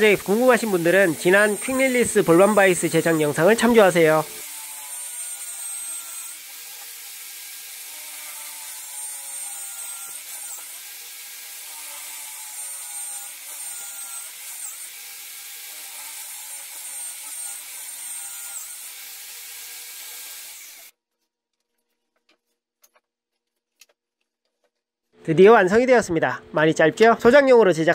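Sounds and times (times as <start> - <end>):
electric drill boring into wood: 0.0 - 20.9.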